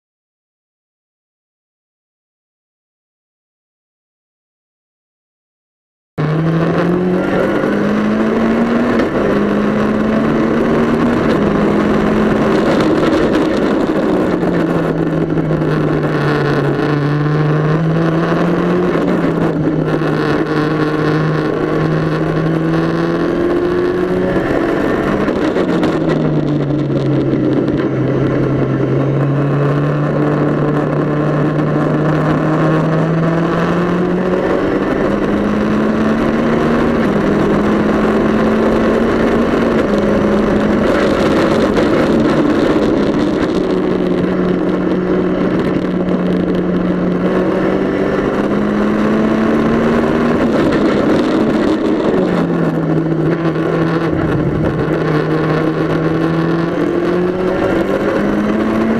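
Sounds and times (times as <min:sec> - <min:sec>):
wind and road noise: 0:06.2 - 0:58.9
race car engine shifting gears: 0:29.8 - 0:58.9.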